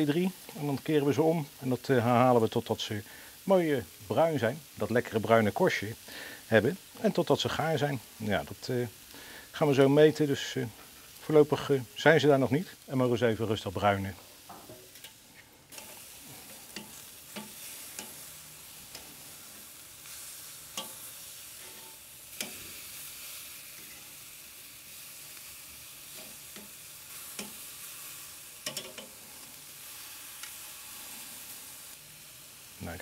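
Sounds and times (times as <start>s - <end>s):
meat sizzling on a grill: 0.0s - 33.0s
metal tongs clicking: 16.7s - 18.2s, 20.7s - 21.0s, 22.4s - 22.6s, 28.6s - 29.1s.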